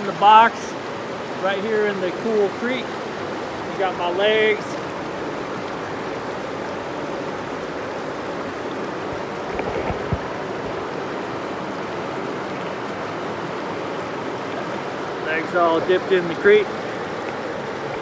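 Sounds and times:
creek water rushing: 0.0 - 18.0
low thumps: 9.1 - 10.8.

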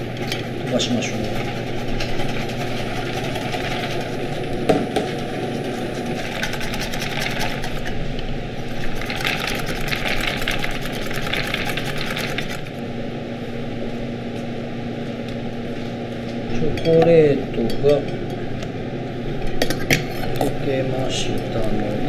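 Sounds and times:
whisk scraping metal bowl: 0.0 - 4.4, 5.5 - 8.0, 8.7 - 12.7.

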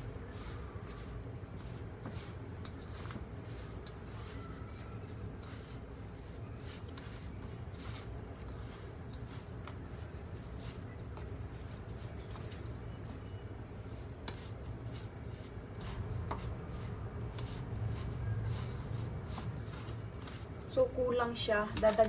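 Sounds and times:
hand rustling food in a bowl: 0.0 - 22.0
steady low hum: 4.9 - 21.7.

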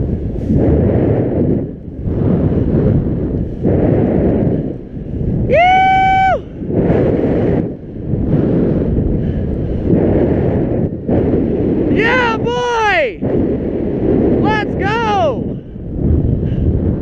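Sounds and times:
wind on microphone: 0.0 - 17.0
skis slicing through powder snow: 0.2 - 4.8
high whoop: 5.5 - 6.5.

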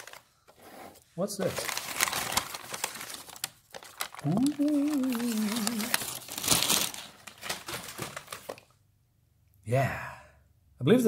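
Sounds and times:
newspaper crinkling and rustling: 0.0 - 0.4, 1.4 - 8.7
man humming: 4.2 - 6.0.

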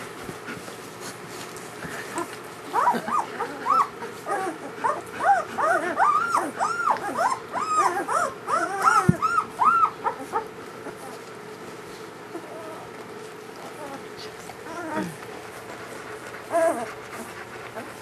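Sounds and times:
puppies whimpering and squeaking: 2.7 - 11.3, 12.3 - 13.0, 13.6 - 18.0.

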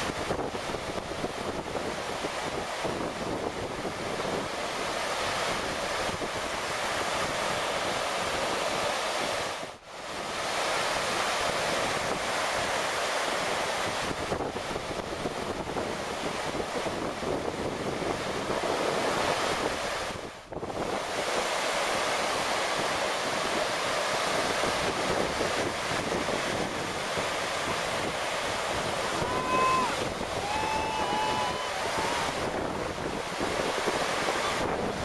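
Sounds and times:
ocean surf breaking on beach: 0.0 - 35.0
wind buffeting microphone: 0.0 - 35.0.

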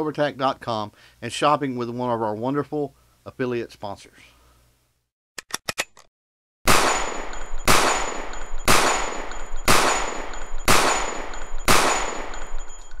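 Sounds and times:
gunshots with high ring: 6.7 - 13.0.

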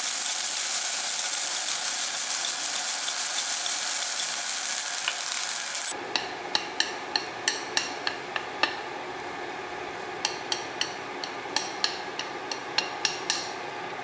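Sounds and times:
rice sizzling in a wok: 0.0 - 6.0
chopsticks clicking against pan: 0.6 - 8.8, 10.2 - 13.5.

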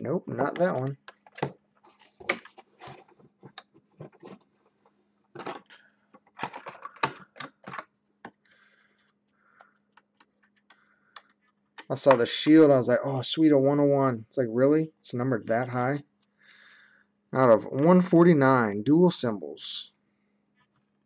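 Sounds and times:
plastic rustling: 0.6 - 7.8.

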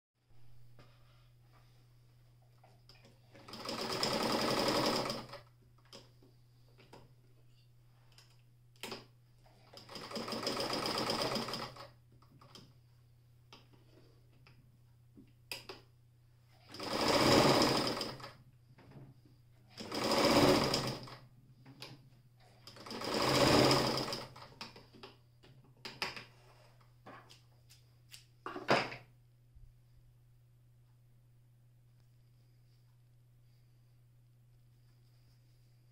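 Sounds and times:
electric sewing machine stitching: 3.4 - 5.4, 9.7 - 12.0, 16.6 - 18.4, 19.8 - 21.2, 22.6 - 24.5.

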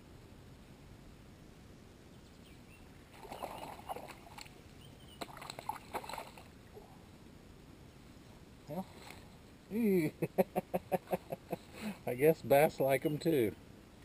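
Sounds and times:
fish splashing and thrashing: 3.1 - 6.6.

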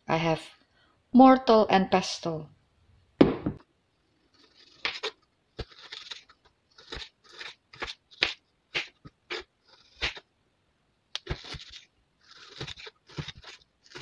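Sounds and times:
thump: 3.2 - 3.6
knife slicing chillies on board: 11.2 - 14.0.

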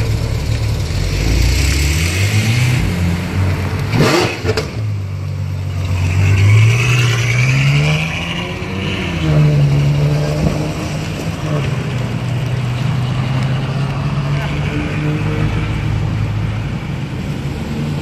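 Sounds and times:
sports car engines revving past: 0.0 - 16.3.

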